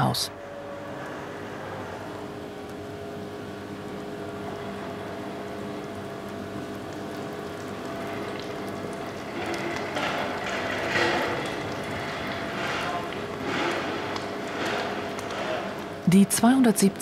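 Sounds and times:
steady hum: 0.0 - 17.0
molten metal pouring hiss: 3.6 - 16.0
crackling: 6.2 - 16.1.

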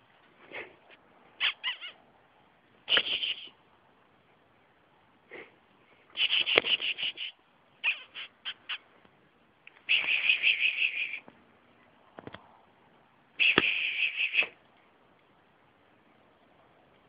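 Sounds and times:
bird chattering call: 1.4 - 2.0, 2.9 - 3.5, 6.2 - 8.8, 9.9 - 11.2, 13.4 - 14.6.

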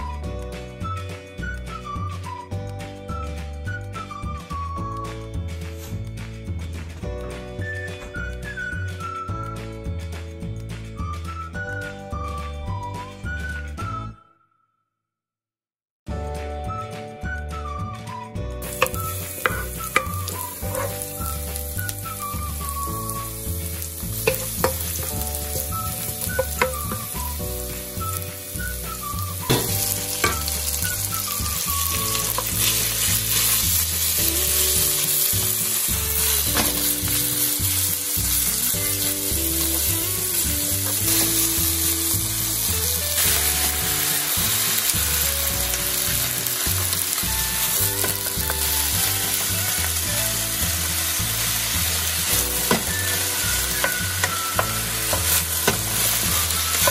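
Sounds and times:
food sizzling in oil: 18.6 - 56.9.

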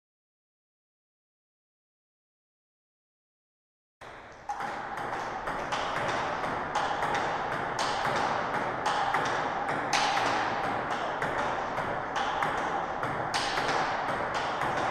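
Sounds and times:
table tennis ball hitting bats: 4.0 - 14.9.

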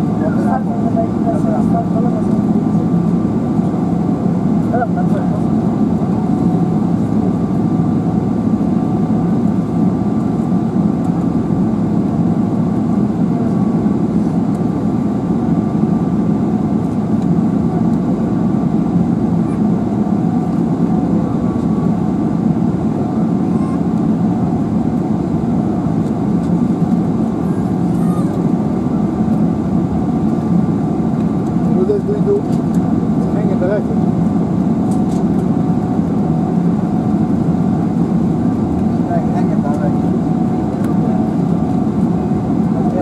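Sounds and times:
aircraft cabin engine rumble: 0.0 - 43.0.

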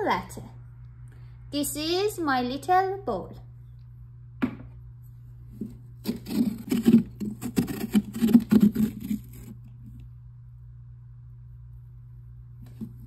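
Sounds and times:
knock: 4.4 - 4.7
spoon scraping pumpkin flesh: 5.6 - 9.6.

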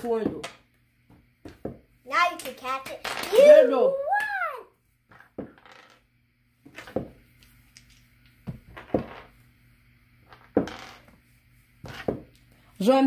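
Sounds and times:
ball and bones knocking on hard surface: 0.0 - 1.9, 5.1 - 6.0, 6.7 - 7.2, 7.8 - 9.3, 10.3 - 11.2, 11.8 - 12.4.

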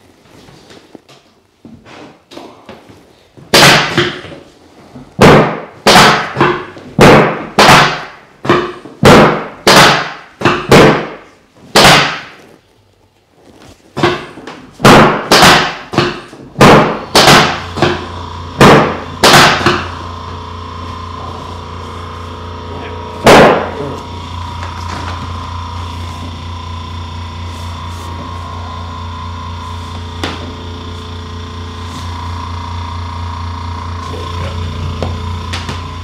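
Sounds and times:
drop table thudding: 14.0 - 20.2, 20.9 - 25.4.

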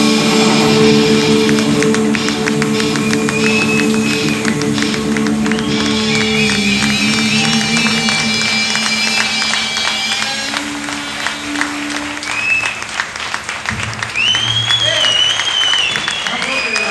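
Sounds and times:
drums with cymbal hits: 0.0 - 12.1
upright bass: 0.0 - 12.4
amplified harmonica: 0.0 - 13.1
electric guitar: 0.0 - 14.1.

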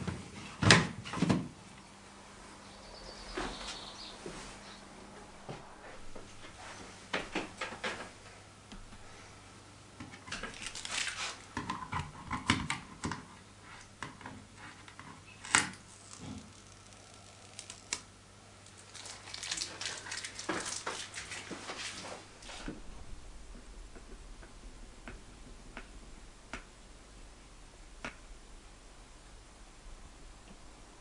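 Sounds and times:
plastic film crackling and rustling: 10.2 - 12.0, 15.4 - 22.8.

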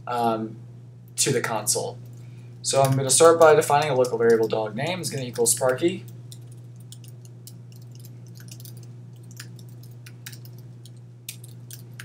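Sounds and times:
low electrical hum: 0.0 - 12.0
keyboard keys clicking: 2.8 - 12.0.

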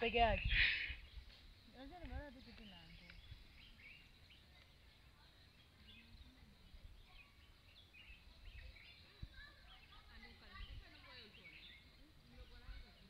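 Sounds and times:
faint small-bird chirps: 0.1 - 13.0.

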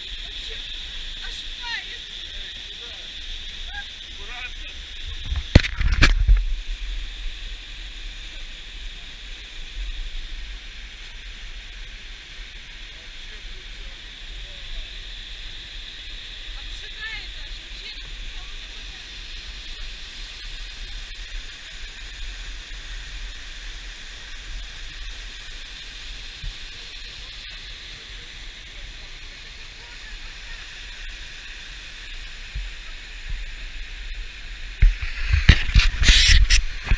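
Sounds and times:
rumbling bumps on microphone: 5.1 - 6.7, 34.8 - 36.9.

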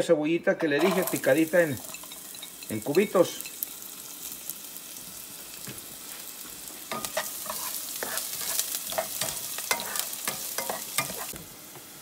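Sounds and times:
spoon scraping pan: 0.6 - 3.6, 6.8 - 11.4
onion sizzling in oil: 0.7 - 12.0.

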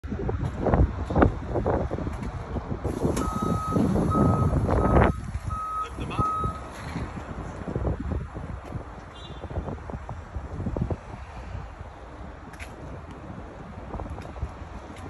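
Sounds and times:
reversing alarm beeping: 3.2 - 6.7.

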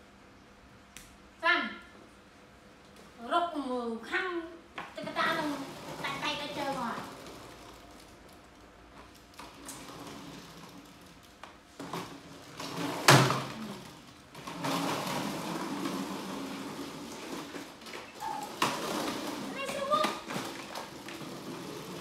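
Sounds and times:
small wheels rolling on tiles: 4.8 - 22.0.

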